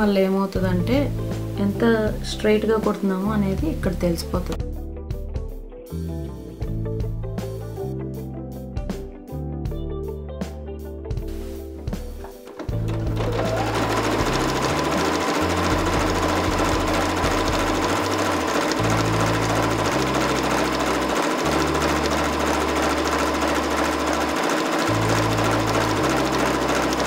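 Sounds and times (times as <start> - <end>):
sewing machine running: 12.2 - 27.0.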